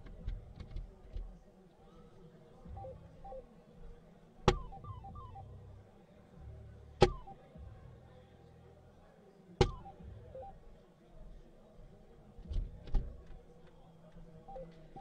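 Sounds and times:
falling electronic chirps: 4.6s - 5.5s.

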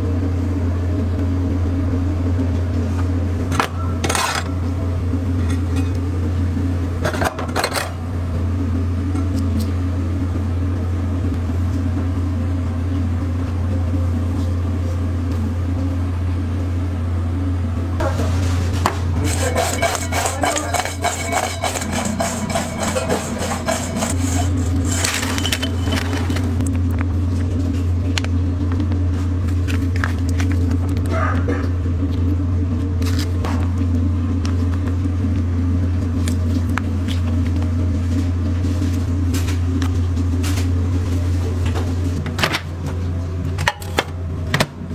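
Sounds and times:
steady low hum: 0.0s - 44.9s
utensils clattering and scraping: 4.0s - 4.6s, 7.0s - 8.0s, 18.0s - 26.6s
fries rattling in metal bowl: 18.0s - 26.6s.

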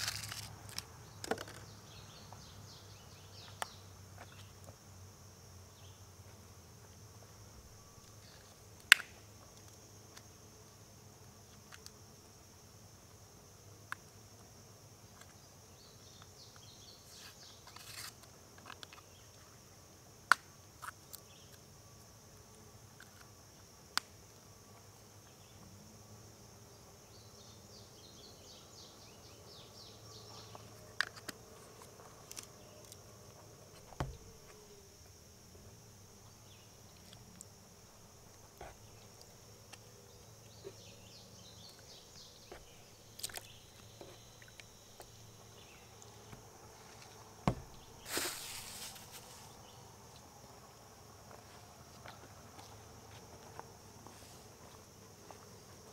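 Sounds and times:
high-pitched insect chorus: 0.0s - 55.9s.

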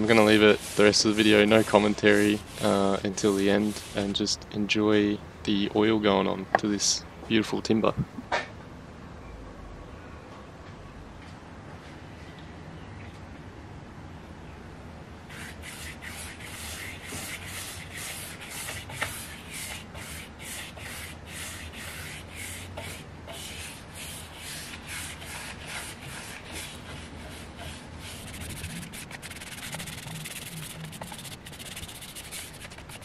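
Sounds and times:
paintbrush strokes on wood: 0.0s - 4.2s, 15.3s - 33.0s.

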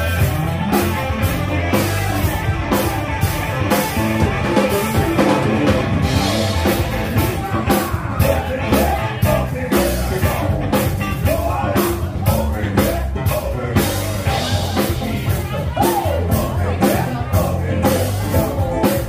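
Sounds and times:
loud rock music: 0.0s - 19.0s
person singing: 3.5s - 19.0s.

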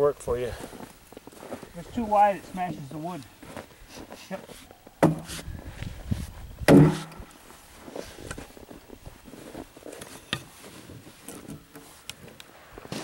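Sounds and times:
axes and logs knocking: 5.0s - 5.4s, 6.7s - 7.3s.

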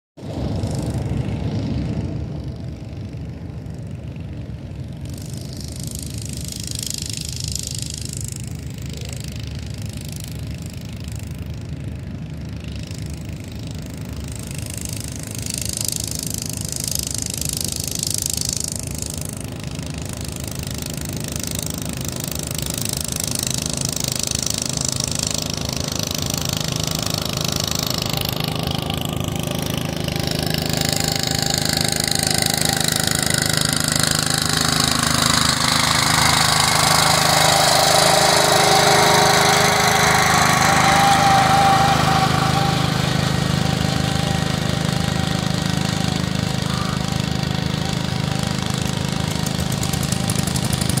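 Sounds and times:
garden tractor engine running: 0.2s - 51.0s
high whine: 25.3s - 51.0s.

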